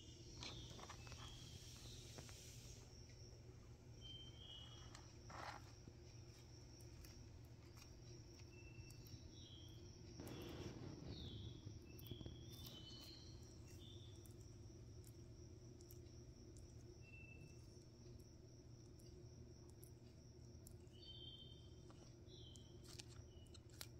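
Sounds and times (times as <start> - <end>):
small squeaks: 0.0 - 2.9, 3.9 - 15.1, 20.7 - 23.9
steady low hum: 0.0 - 23.9
tortoise biting lettuce: 22.0 - 23.9.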